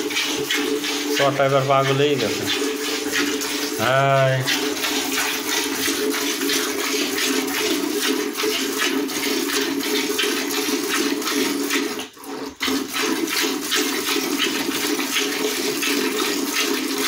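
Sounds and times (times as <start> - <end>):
milk squirting into pail: 0.0 - 17.0.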